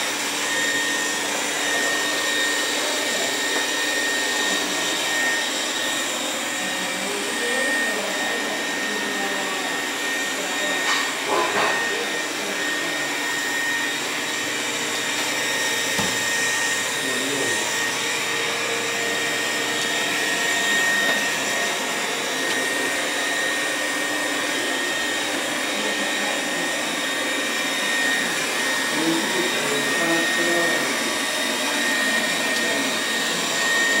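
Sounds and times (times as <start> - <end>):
robot vacuum running: 0.0 - 34.0.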